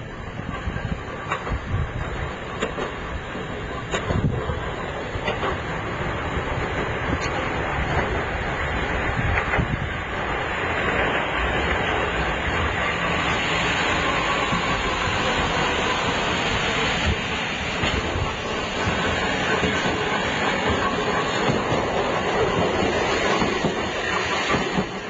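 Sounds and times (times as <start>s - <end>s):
streetcar running noise: 0.0s - 25.0s
wind on microphone: 0.0s - 25.0s.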